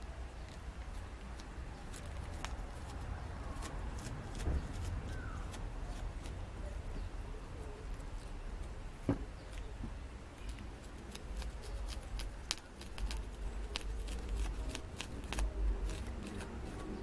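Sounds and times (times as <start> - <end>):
thump: 4.4 - 4.7, 9.0 - 10.0.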